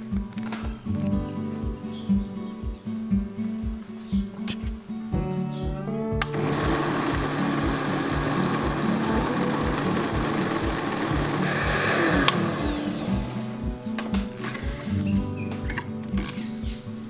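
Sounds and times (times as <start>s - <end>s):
blender running: 6.3s - 13.0s.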